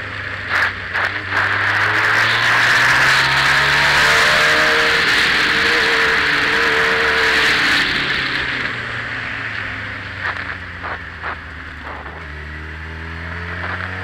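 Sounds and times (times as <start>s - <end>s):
motorcycle engine at low revs: 0.0s - 14.0s.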